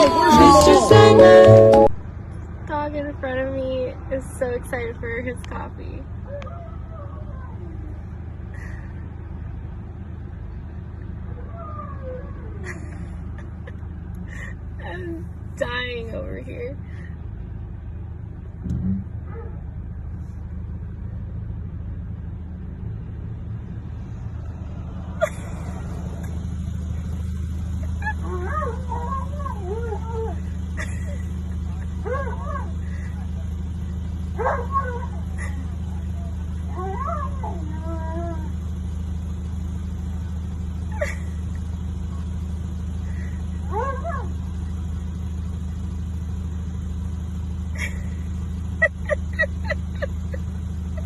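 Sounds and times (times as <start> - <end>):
husky whine: 0.0 - 1.9, 25.1 - 38.9, 42.9 - 45.1, 47.7 - 51.0
car engine idling: 0.0 - 51.0.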